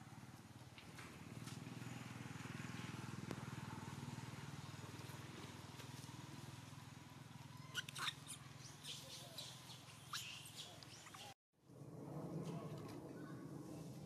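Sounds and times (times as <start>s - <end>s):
animal squeaks and chirps: 7.5s - 11.3s.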